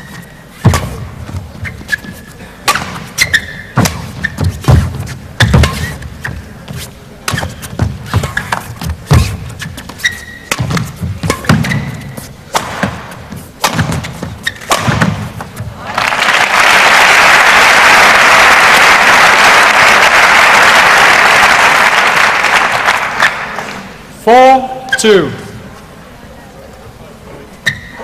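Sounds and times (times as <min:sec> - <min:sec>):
shoes squeaking: 0:00.0 - 0:15.8, 0:27.5 - 0:28.0
racket striking shuttlecock: 0:00.6 - 0:06.5, 0:07.2 - 0:15.6
foot stamps on court: 0:02.7 - 0:15.8.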